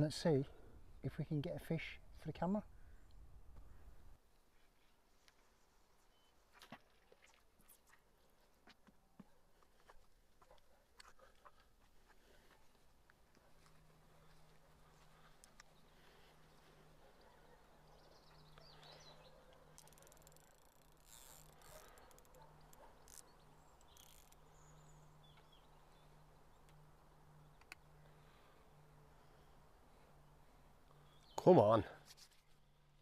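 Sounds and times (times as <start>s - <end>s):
small clicks: 19.5s - 24.4s, 27.6s - 27.8s.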